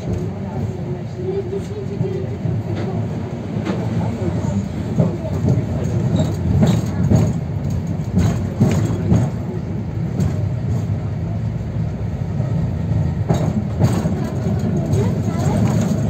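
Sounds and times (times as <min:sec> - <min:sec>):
tram wheels rumbling: 0:00.0 - 0:16.0
wheels clacking over rail joints: 0:01.4 - 0:11.1, 0:12.8 - 0:16.0.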